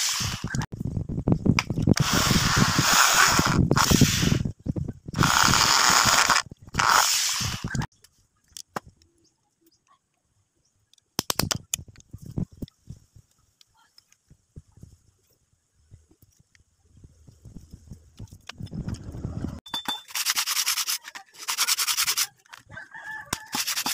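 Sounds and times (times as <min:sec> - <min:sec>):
electric drill boring: 0:05.2 - 0:07.7
sharp clicks: 0:10.9 - 0:12.1.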